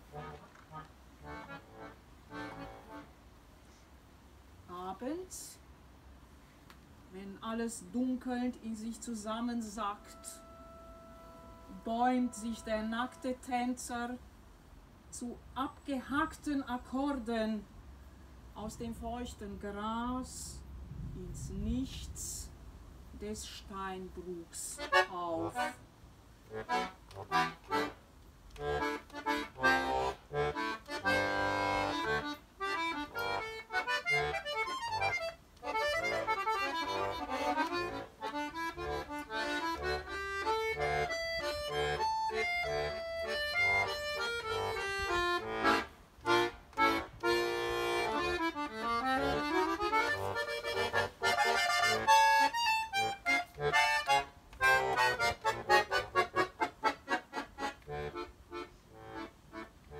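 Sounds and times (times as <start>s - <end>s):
accordion melody: 0.0s - 3.3s, 8.8s - 13.9s, 24.8s - 25.8s, 26.4s - 59.9s.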